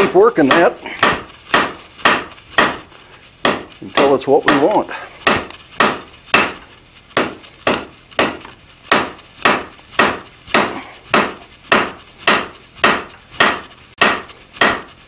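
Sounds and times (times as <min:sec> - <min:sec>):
hammer striking steel on anvil: 0:00.0 - 0:06.6, 0:07.2 - 0:14.9.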